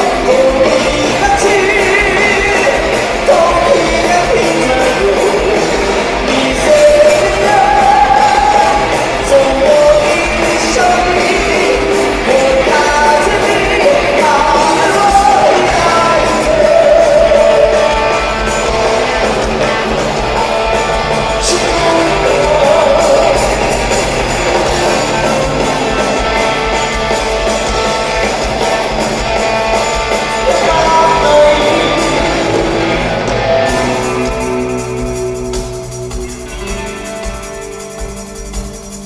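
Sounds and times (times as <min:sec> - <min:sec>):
man singing: 0:00.0 - 0:18.7, 0:21.2 - 0:24.0, 0:30.2 - 0:32.7
live rock band playing: 0:00.0 - 0:39.0.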